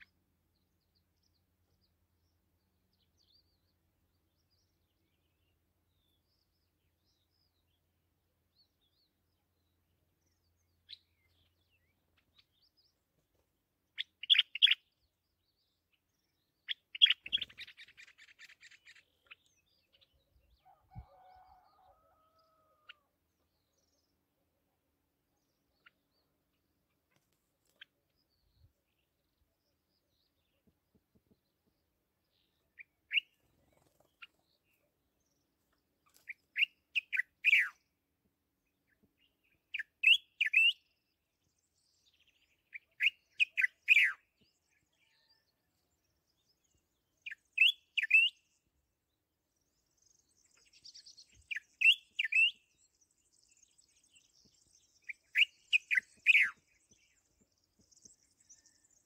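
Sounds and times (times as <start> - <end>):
songbird whistling notes: 51.5 - 52.7, 55.0 - 56.6.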